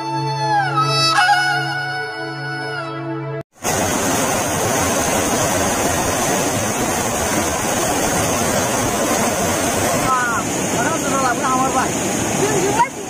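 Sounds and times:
water rushing below sluice gate: 0:03.6 - 0:13.0.

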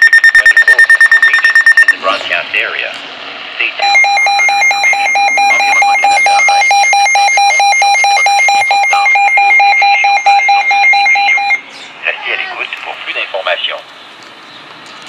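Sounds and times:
rapid electronic alarm beeping: 0:00.0 - 0:02.0, 0:03.8 - 0:11.6.

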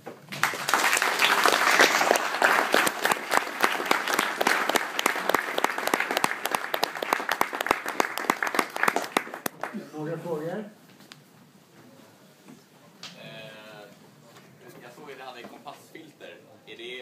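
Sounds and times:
audience applauding: 0:00.2 - 0:09.8.

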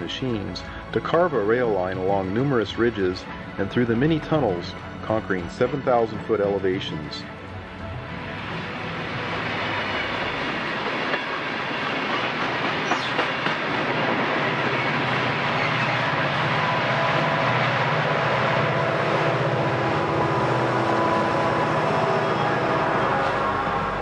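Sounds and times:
diesel locomotives droning: 0:00.0 - 0:24.0
train wheels clicking on rail joints: 0:09.8 - 0:17.8.

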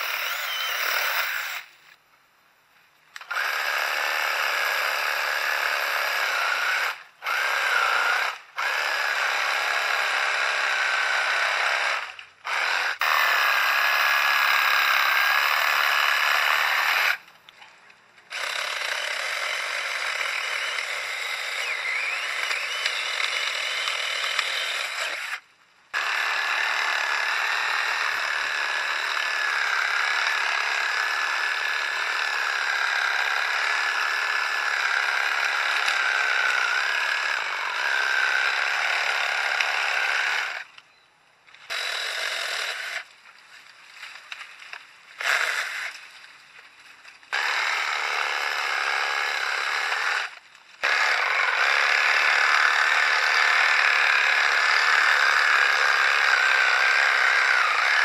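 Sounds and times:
saber saw cutting branch: 0:00.0 - 0:02.0, 0:03.2 - 0:17.4, 0:18.3 - 0:40.8, 0:41.5 - 0:58.0.

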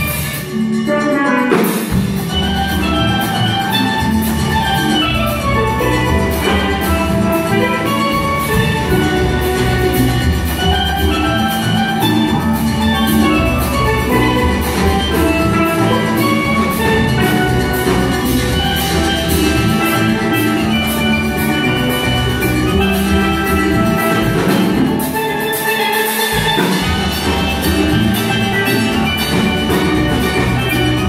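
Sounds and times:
drum kit rhythm: 0:00.0 - 0:31.0
steel band playing: 0:00.0 - 0:31.0.

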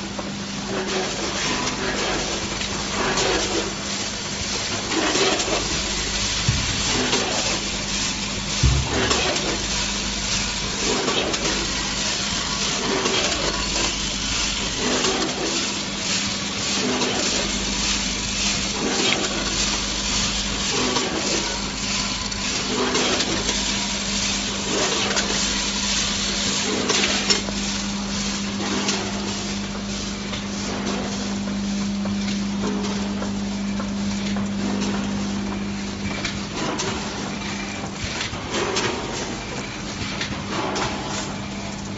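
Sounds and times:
packing machine humming: 0:00.0 - 0:41.9
machine knocking: 0:05.6 - 0:11.5.

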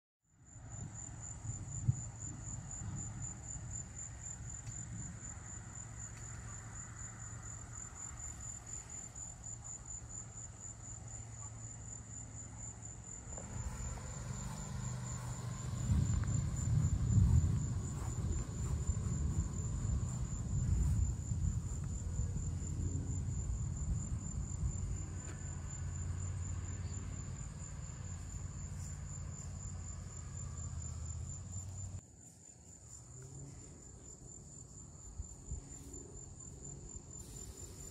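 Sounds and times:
insects chirping: 0:00.4 - 0:37.9
distant thunder rumble: 0:13.3 - 0:25.2.

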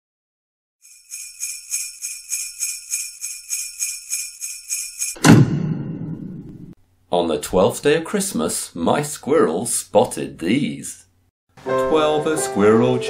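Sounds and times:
sleigh bells shaken: 0:00.8 - 0:05.2
low ringing hit: 0:05.2 - 0:06.8.

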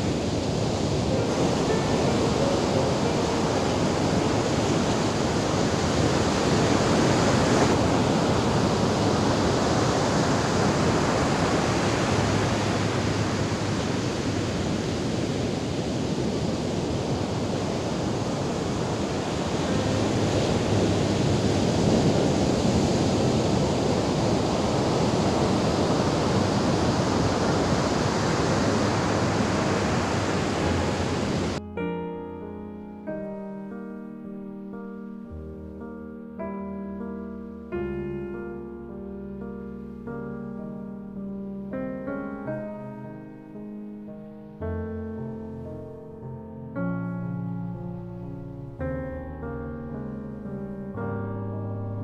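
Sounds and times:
ocean waves breaking on beach: 0:00.0 - 0:31.6.

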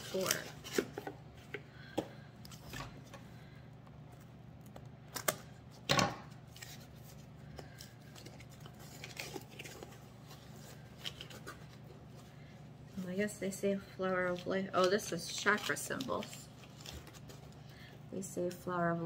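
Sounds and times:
paper and cardboard rustling: 0:00.0 - 0:01.9, 0:06.5 - 0:13.3, 0:14.0 - 0:18.0.

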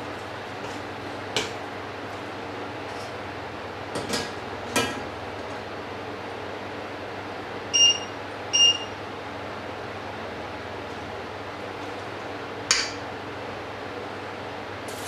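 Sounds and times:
steady background hum: 0:00.0 - 0:15.0
short electronic beeps: 0:07.8 - 0:08.9.

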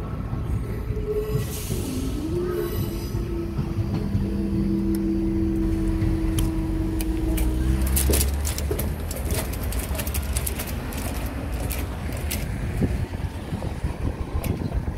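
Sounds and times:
low rumble: 0:00.0 - 0:14.9
crackling clicks: 0:06.3 - 0:12.6.

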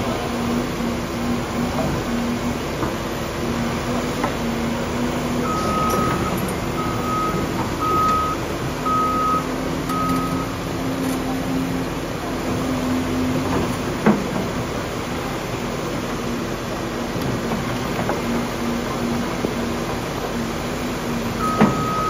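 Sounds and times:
excavator diesel engine: 0:00.0 - 0:22.0
backup alarm beeping: 0:05.4 - 0:10.6, 0:21.4 - 0:22.0.

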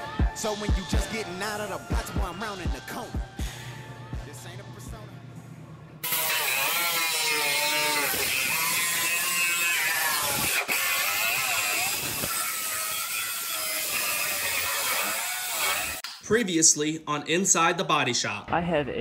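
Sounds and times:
air cut-off tool cutting metal: 0:06.0 - 0:16.1.

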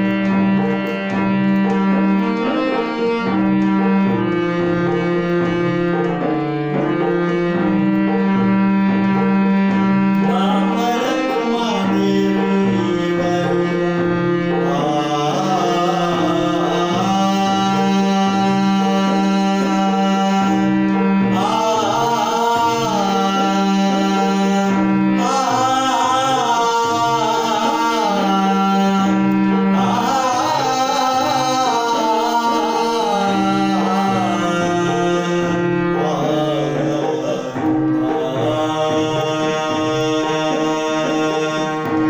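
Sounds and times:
harmonium chords: 0:00.0 - 0:42.0
man singing: 0:10.1 - 0:42.0.

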